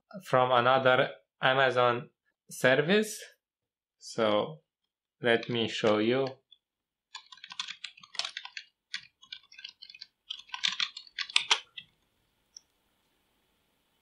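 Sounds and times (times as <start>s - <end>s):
typing on computer keyboard: 7.1s - 12.0s.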